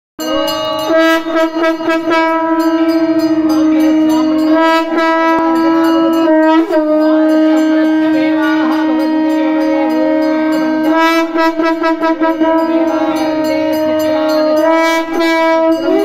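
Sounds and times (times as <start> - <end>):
conch shell blown: 0.2 - 16.0
faint bell ringing: 0.2 - 16.0.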